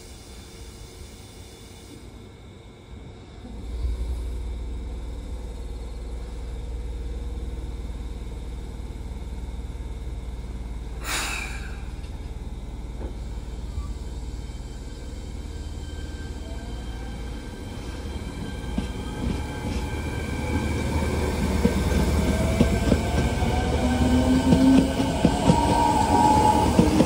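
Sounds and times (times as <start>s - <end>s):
electric train rumble and hum: 0.0s - 27.0s
faint rising train whine: 0.0s - 27.0s
air brakes hissing: 11.0s - 12.3s.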